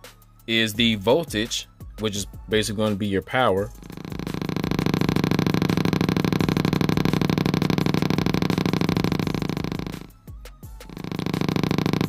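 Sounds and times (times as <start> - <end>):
speaker pops buzzing: 3.7 - 12.0.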